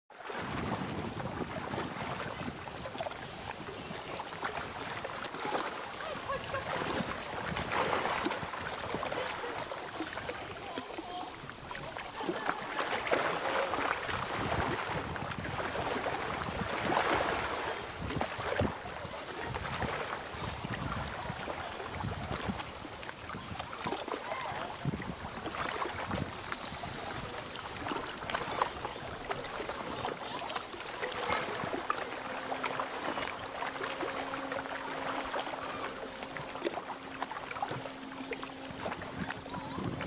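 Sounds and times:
water lapping against rocks: 0.1s - 40.0s
gusts of wind: 0.3s - 4.1s, 14.0s - 22.7s, 24.6s - 27.5s, 38.7s - 40.0s.

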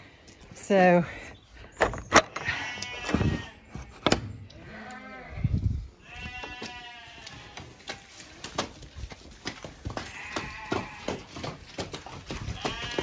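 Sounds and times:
horses whinnying: 10.0s - 11.5s, 12.1s - 13.0s.

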